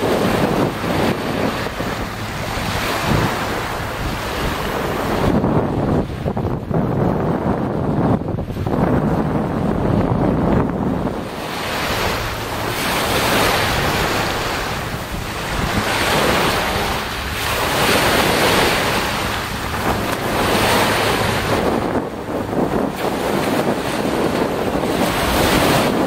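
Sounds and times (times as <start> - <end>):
waves washing up a pebble shore: 0.0 - 5.4, 11.1 - 26.0
wind buffeting the microphone: 0.0 - 26.0.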